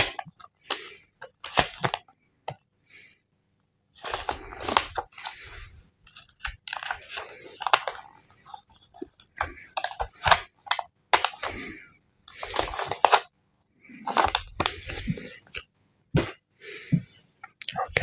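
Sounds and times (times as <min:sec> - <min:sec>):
paper rustling and crinkling: 0:00.0 - 0:02.1, 0:04.0 - 0:13.3, 0:13.9 - 0:15.5.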